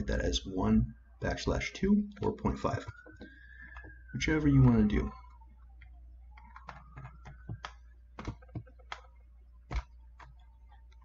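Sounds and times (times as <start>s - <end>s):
faint background tone: 0.0s - 11.0s
mouse and keyboard clicks: 6.4s - 11.0s.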